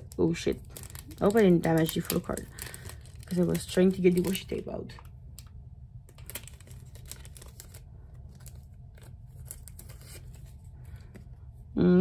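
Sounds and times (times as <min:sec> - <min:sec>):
low steady hum: 0:00.0 - 0:12.0
tape peeling off plastic sleeve: 0:06.1 - 0:10.6.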